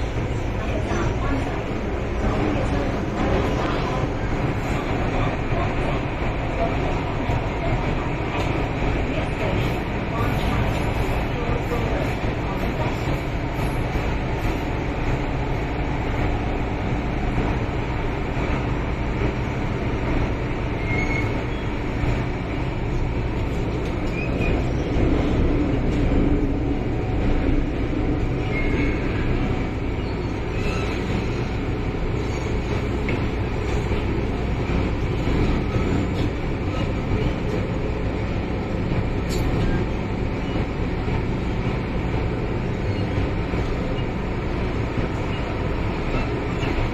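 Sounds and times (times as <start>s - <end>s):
train wheels rumbling on rail: 0.0s - 46.9s.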